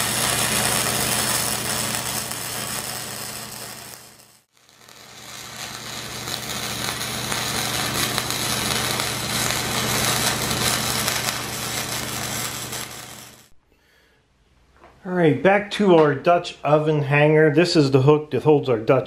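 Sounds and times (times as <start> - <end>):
welding arc sizzling: 0.0 - 13.6.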